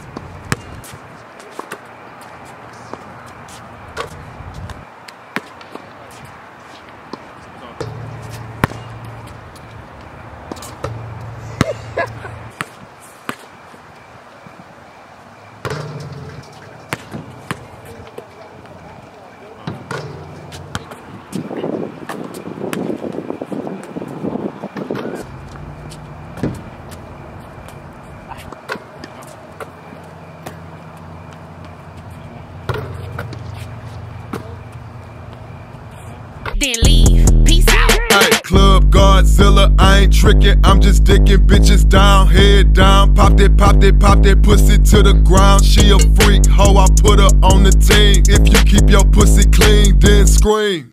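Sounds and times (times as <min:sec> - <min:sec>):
basketball thudding on court: 0:00.1 - 0:00.8, 0:07.8 - 0:09.0, 0:16.9 - 0:17.7, 0:19.6 - 0:21.0, 0:32.7 - 0:33.5
steady low hum: 0:29.7 - 0:50.4.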